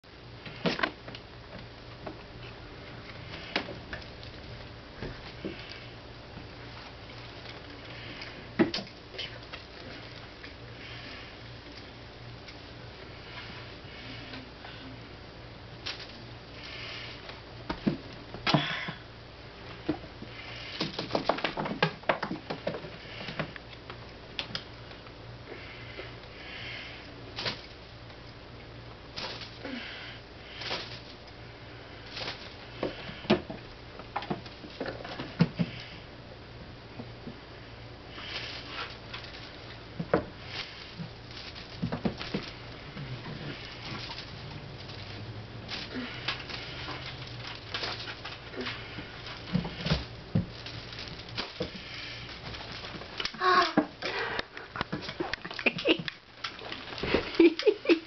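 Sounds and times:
steady low hum: 0.0s - 58.0s
kittens scratching cat tree: 38.1s - 53.7s.

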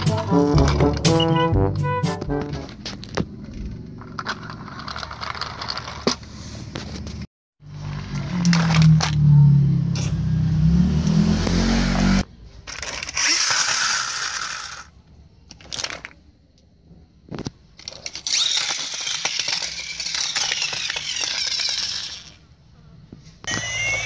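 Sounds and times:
plastic toys scraping and rattling: 2.4s - 9.3s, 12.5s - 16.3s, 17.3s - 22.5s, 23.4s - 24.0s
toy trucks rumbling on carpet: 2.7s - 9.2s, 12.5s - 16.2s, 17.3s - 22.5s, 23.1s - 24.0s.

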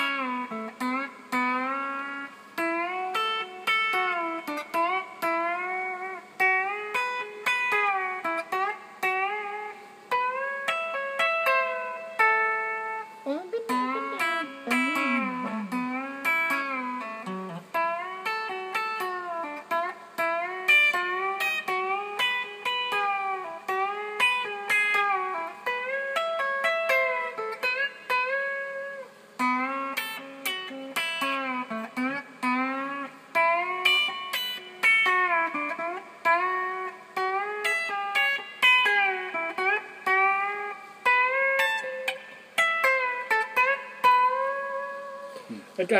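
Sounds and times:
electric guitar licks with bends: 0.0s - 45.9s.

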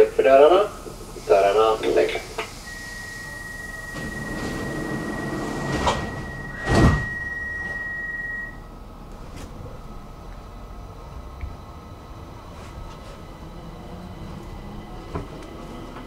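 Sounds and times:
train doors sliding shut: 0.8s - 8.3s, 12.6s - 16.0s
high warning beep: 2.6s - 8.7s.

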